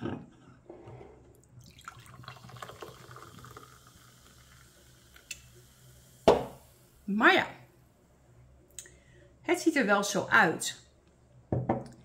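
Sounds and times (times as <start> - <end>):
soda pouring and fizzing: 1.6 - 7.1.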